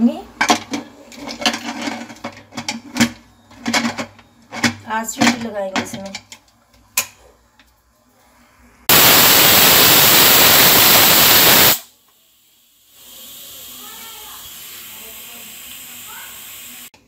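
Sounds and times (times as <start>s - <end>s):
pressure cooker venting steam: 8.9s - 17.0s.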